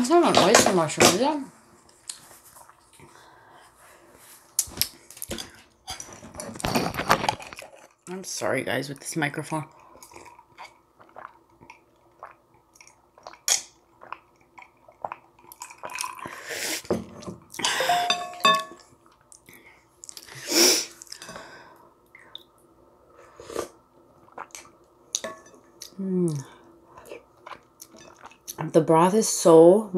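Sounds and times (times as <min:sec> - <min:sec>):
chewing noodles: 0:09.7 - 0:16.4, 0:26.9 - 0:28.6
loud slurps of broth: 0:23.3 - 0:23.8.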